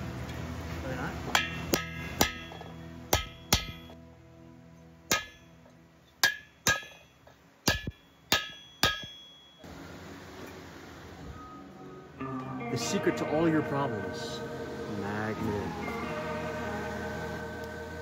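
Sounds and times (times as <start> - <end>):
hammer striking metal bar: 1.3 - 4.0, 5.1 - 5.6, 6.2 - 9.6.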